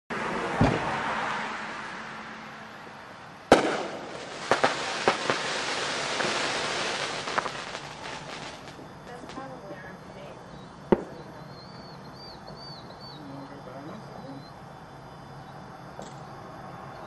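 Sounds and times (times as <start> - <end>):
firework bangs: 0.4 - 2.0, 2.8 - 10.3, 10.9 - 11.9
steady hiss: 1.7 - 16.8.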